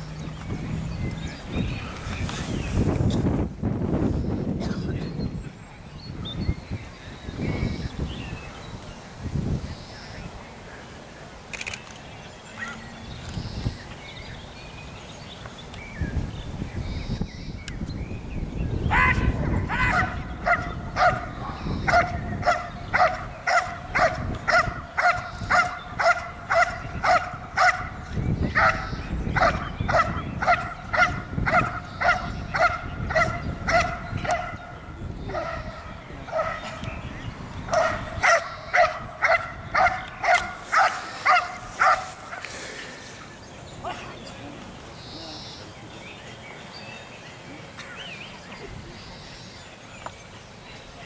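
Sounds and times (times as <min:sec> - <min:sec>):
dog barking: 0:19.6 - 0:27.9, 0:28.6 - 0:34.6, 0:35.3 - 0:36.7, 0:37.7 - 0:42.4.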